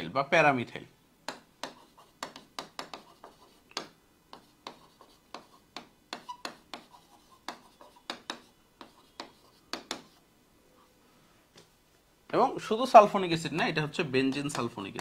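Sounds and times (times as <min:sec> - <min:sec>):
pen tapping and scraping whiteboard: 0:01.3 - 0:10.2, 0:14.2 - 0:15.0.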